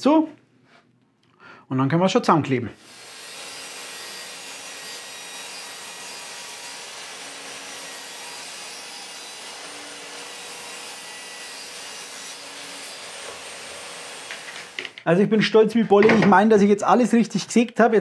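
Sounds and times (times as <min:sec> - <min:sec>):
table saw ripping wood: 0:02.8 - 0:15.1.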